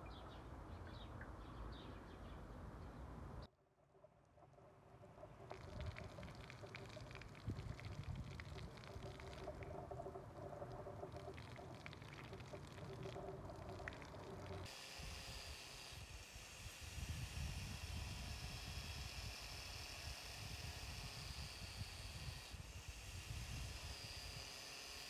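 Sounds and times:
water pouring and splashing on metal: 0:05.0 - 0:14.7.

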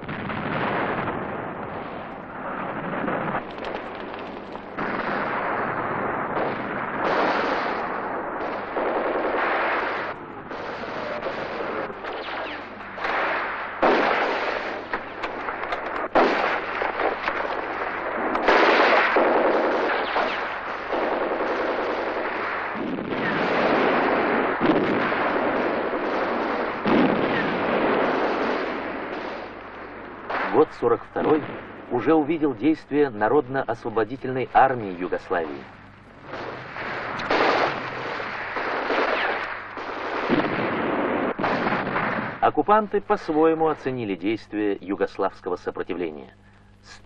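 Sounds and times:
machine-gun and rifle fire: 0:00.0 - 0:31.8, 0:35.1 - 0:42.5
sharp loud gunshots: 0:00.0 - 0:45.0.

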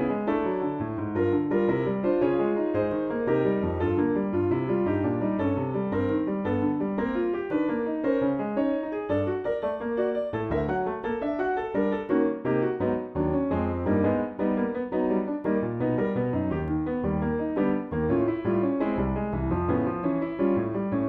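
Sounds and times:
piano playing quick running notes: 0:00.0 - 0:21.0.

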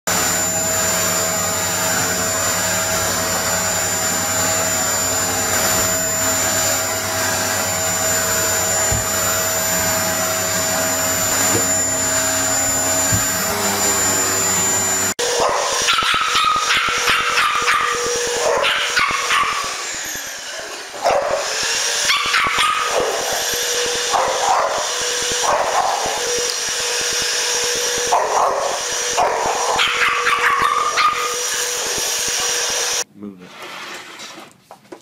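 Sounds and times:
vacuum cleaner whining: 0:00.1 - 0:34.6
dog barking: 0:15.2 - 0:19.7, 0:21.0 - 0:23.4, 0:24.1 - 0:24.8, 0:25.4 - 0:26.2, 0:28.1 - 0:31.4.

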